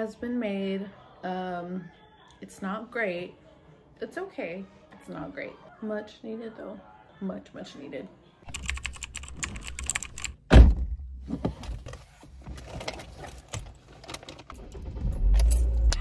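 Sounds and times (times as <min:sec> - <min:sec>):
heavy thump: 0:10.5 - 0:11.0.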